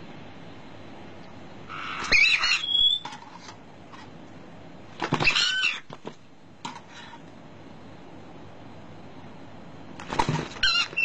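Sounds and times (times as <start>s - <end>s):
parrots calling: 1.7s - 3.2s, 5.0s - 5.9s, 10.5s - 11.0s.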